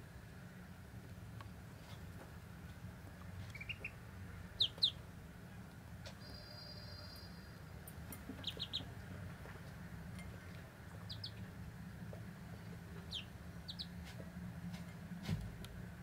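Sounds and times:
ducklings peeping: 3.3s - 5.2s, 6.0s - 14.2s.

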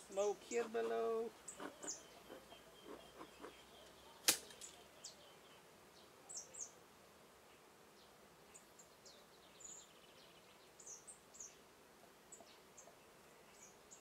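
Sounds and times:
high bird chirps: 1.4s - 5.6s
sharp click: 4.2s - 4.8s.

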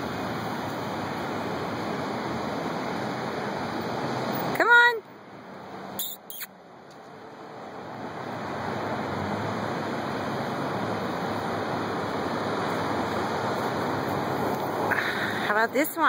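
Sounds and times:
steady outdoor rushing noise: 0.0s - 16.0s
short clicks: 6.0s - 7.0s.

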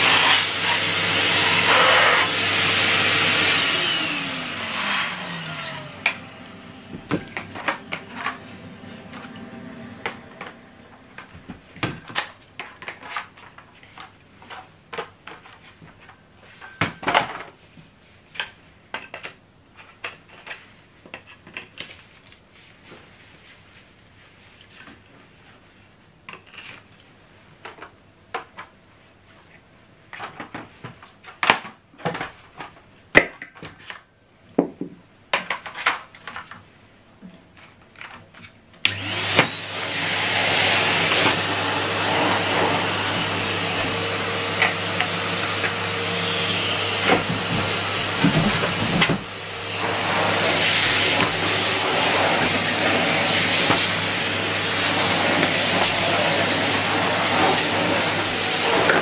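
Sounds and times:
vacuum cleaner running with whine: 0.0s - 11.9s, 38.9s - 59.0s.

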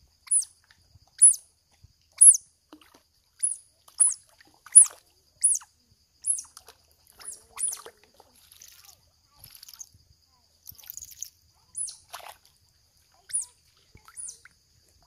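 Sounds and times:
baby otter squeaking: 0.3s - 0.5s, 1.2s - 1.4s, 2.2s - 2.4s, 3.4s - 6.5s, 7.2s - 7.8s, 11.7s - 12.1s, 13.3s - 14.5s.

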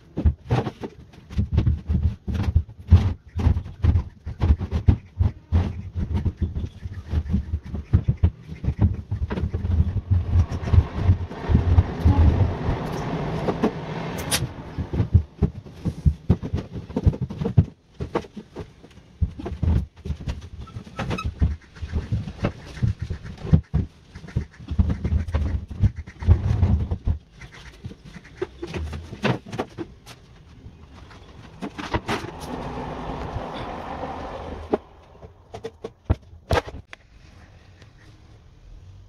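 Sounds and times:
knocks and thumps on plastic tank: 0.0s - 12.8s, 14.8s - 30.0s
plastic tank scraping: 0.0s - 37.0s.

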